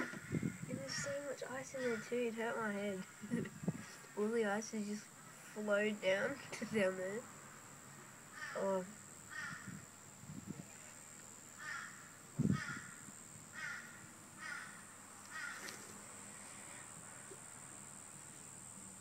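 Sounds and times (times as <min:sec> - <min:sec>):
crow cawing: 0:00.0 - 0:00.6, 0:01.8 - 0:02.1, 0:08.3 - 0:08.6, 0:09.3 - 0:09.8, 0:11.6 - 0:15.8.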